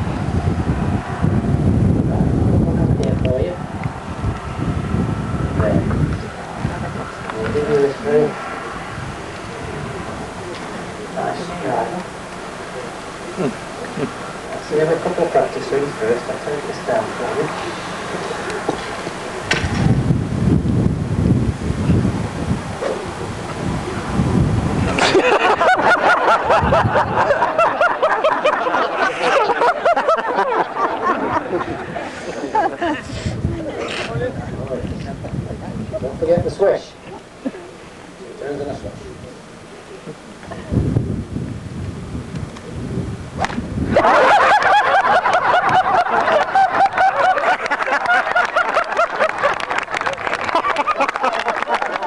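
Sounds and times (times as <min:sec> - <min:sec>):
wind rumbling on microphone: 0:00.0 - 0:12.0, 0:16.8 - 0:27.9, 0:30.4 - 0:37.2, 0:40.1 - 0:47.3
voices calling out: 0:05.5 - 0:19.6
golf club hitting ball: 0:43.4 - 0:43.7
crowd applauding: 0:43.9 - 0:52.0.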